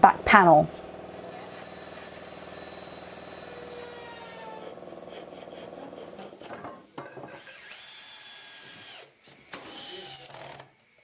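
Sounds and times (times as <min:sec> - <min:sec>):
cordless drill into wood: 0:01.1 - 0:06.4, 0:07.4 - 0:10.8.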